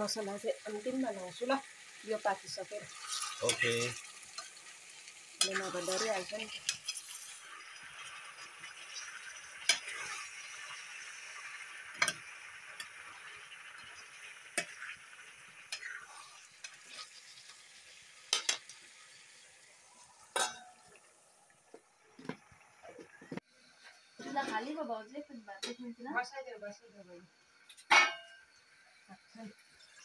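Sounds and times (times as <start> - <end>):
food sizzling in hot oil: 0.0 - 30.0
metal ladle knocking on pan: 27.9 - 28.3.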